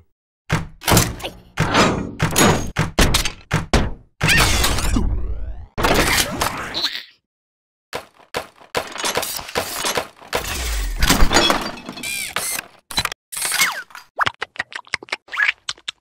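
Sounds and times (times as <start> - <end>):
cartoon clatters and knocks: 0.5 - 6.6, 8.0 - 13.2.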